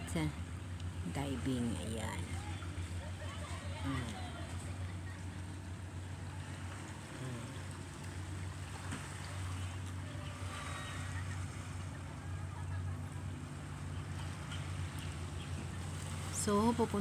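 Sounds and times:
faint distant voices: 0:00.0 - 0:17.0
outboard motor humming: 0:00.0 - 0:17.0.

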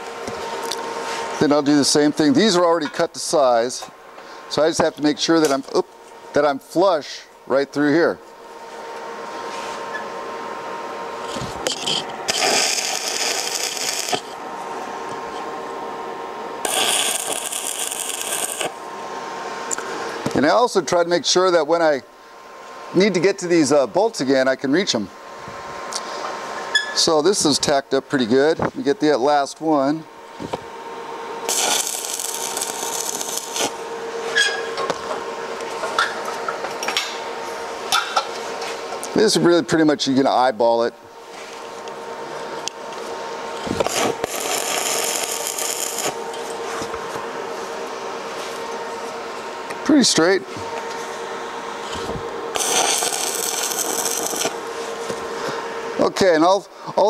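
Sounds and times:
scratchy arc strike: 0:11.2 - 0:14.4, 0:16.6 - 0:18.8, 0:31.5 - 0:35.2, 0:43.6 - 0:47.1, 0:51.9 - 0:55.4
welding arc crackling: 0:11.5 - 0:14.4, 0:16.6 - 0:18.9, 0:31.4 - 0:33.9, 0:43.6 - 0:47.0, 0:52.5 - 0:55.3.

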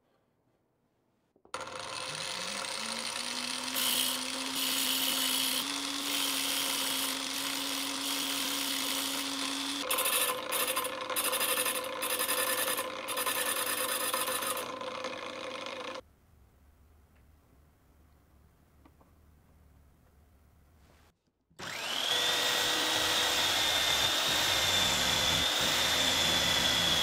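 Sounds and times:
angle grinder whining: 0:01.6 - 0:16.0, 0:21.6 - 0:27.0
drill bit rasping on grinding wheel: 0:01.6 - 0:16.0, 0:21.6 - 0:27.0.

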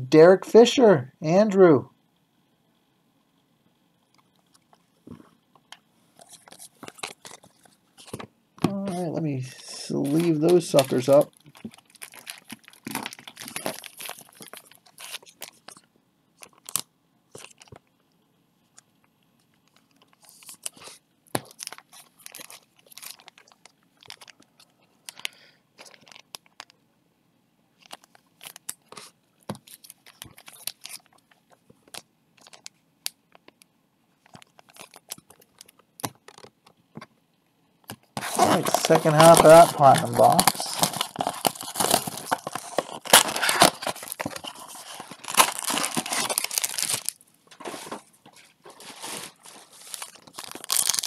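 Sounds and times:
plastic sleeves crinkling: 0:06.2 - 0:17.8, 0:19.5 - 0:26.8, 0:27.8 - 0:33.6, 0:34.2 - 0:37.1, 0:37.8 - 0:51.0.

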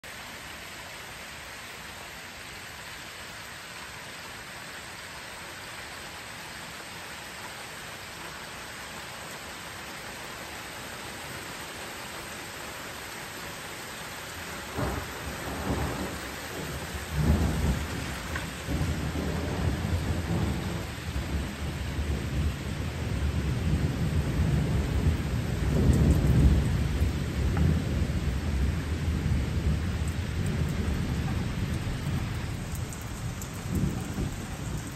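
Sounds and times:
steady rain falling: 0:00.0 - 0:34.9
thunder crack and rumble: 0:14.7 - 0:34.9.

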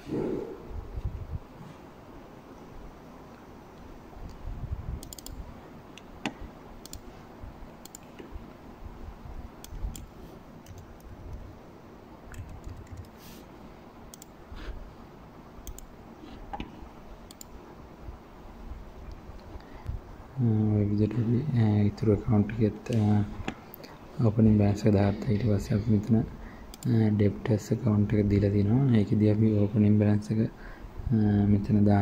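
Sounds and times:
low steady hum: 0:00.0 - 0:32.0
mouse clicks: 0:05.0 - 0:05.4, 0:15.6 - 0:15.9.

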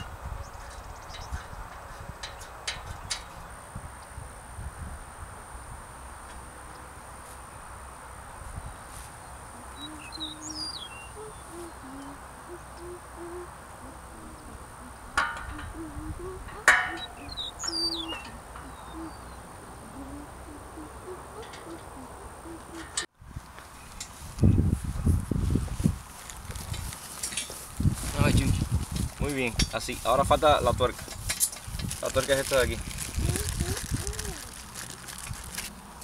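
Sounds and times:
birds calling and chirping: 0:00.0 - 0:03.6, 0:09.2 - 0:23.1
sharp metallic clanks: 0:15.2 - 0:15.8, 0:16.5 - 0:18.9.

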